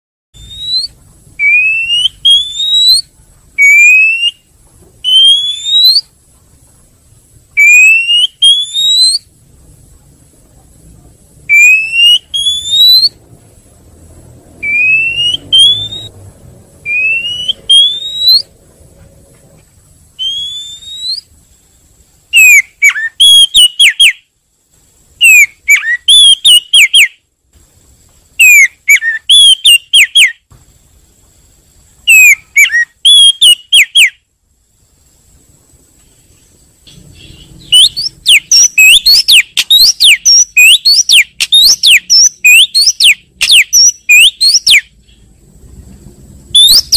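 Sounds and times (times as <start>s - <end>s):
bird whistling calls: 0.4s - 6.1s, 7.6s - 9.3s, 11.5s - 13.2s, 14.6s - 16.2s, 16.8s - 18.6s, 20.2s - 21.3s, 22.3s - 24.3s, 25.2s - 27.2s, 28.4s - 30.5s, 32.0s - 34.2s, 36.1s - 45.3s, 46.5s - 46.9s.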